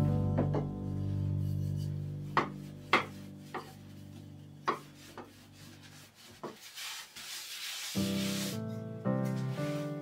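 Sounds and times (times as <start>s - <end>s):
rolling pin rubbing on dough: 1.4s - 8.6s
rolling pin knocking on counter: 2.4s - 3.8s, 4.6s - 5.3s.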